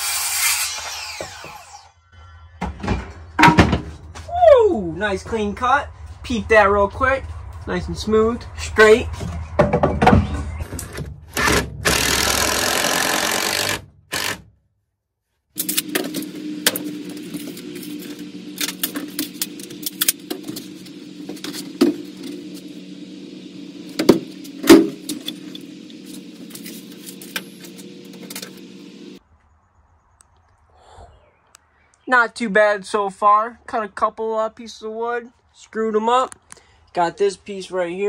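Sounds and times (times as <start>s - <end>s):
circular saw cutting wood: 0.0s - 2.0s, 11.4s - 14.4s, 15.6s - 29.2s
steady low hum: 4.6s - 10.6s, 15.6s - 29.2s.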